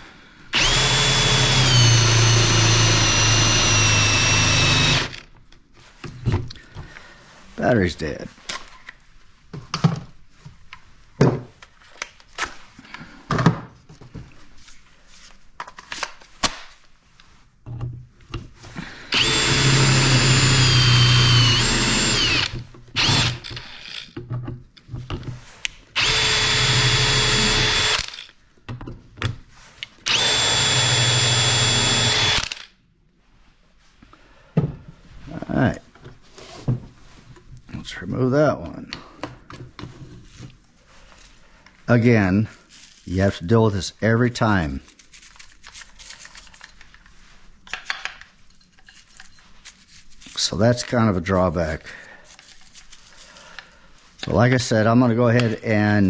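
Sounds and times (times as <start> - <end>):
drill whining into wood: 0.5 - 5.3, 19.1 - 24.2, 26.0 - 28.3, 30.0 - 32.7
drill handling clicks and knocks: 0.6 - 5.6, 19.1 - 29.4, 30.1 - 32.7.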